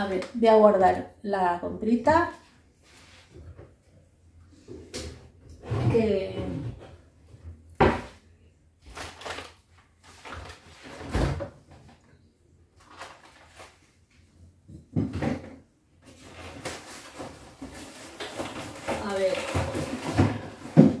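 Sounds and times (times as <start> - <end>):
packages knocking on shelves: 17.7 - 21.0.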